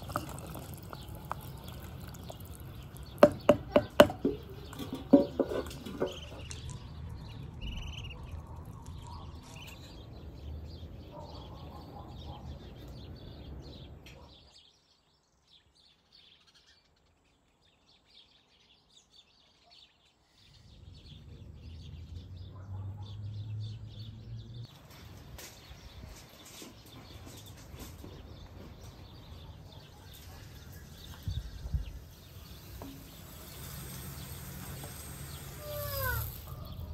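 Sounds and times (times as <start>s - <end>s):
ducklings peeping: 6.0s - 10.0s.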